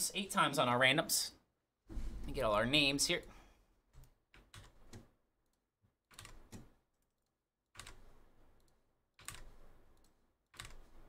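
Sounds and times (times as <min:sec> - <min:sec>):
keyboard and mouse clicking: 0:04.0 - 0:07.1, 0:07.8 - 0:11.0.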